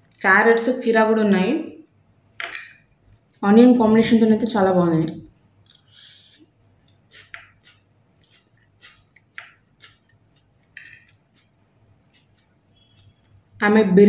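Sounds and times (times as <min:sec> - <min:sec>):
person chewing food: 0:05.7 - 0:13.6.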